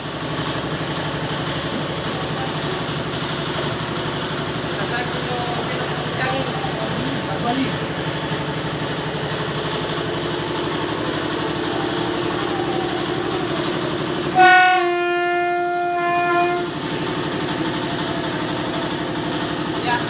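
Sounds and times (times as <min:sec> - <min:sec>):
engine running steadily: 0:00.0 - 0:20.0
loud vehicle horn blast: 0:11.4 - 0:18.0.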